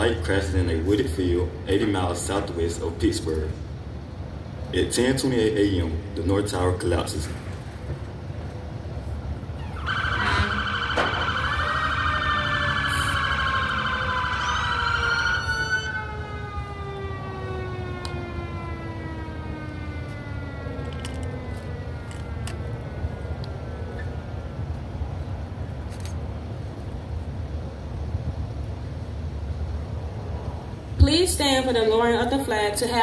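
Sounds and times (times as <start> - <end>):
emergency vehicle sirens: 7.8 - 25.7.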